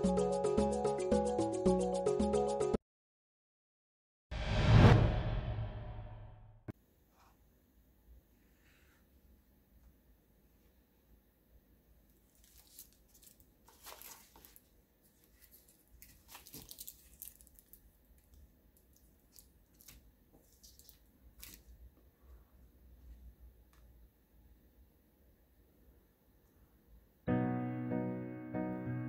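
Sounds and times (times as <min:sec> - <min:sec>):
plastic wrapper crinkling: 0:12.2 - 0:21.8.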